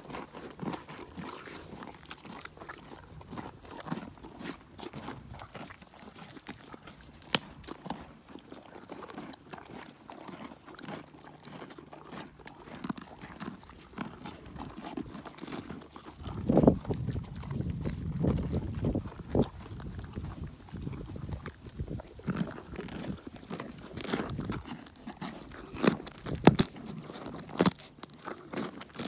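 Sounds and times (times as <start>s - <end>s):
ponies crunching carrots: 0.0s - 29.0s
carrot snapping: 25.8s - 28.4s.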